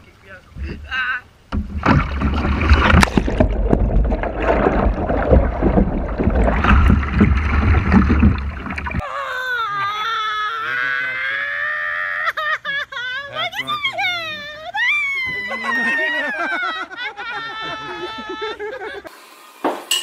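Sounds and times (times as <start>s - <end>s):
water splashing and churning: 0.0s - 9.0s
woman crying out: 9.0s - 16.6s, 17.4s - 18.7s.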